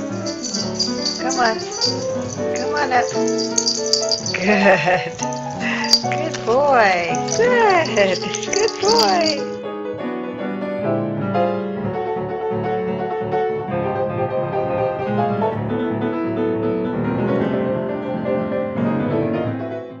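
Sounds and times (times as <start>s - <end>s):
solo piano music: 0.0s - 4.4s, 9.4s - 20.0s.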